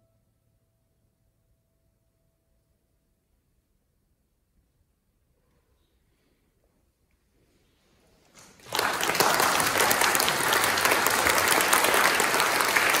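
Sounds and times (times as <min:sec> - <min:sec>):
audience applauding: 0:08.4 - 0:13.0.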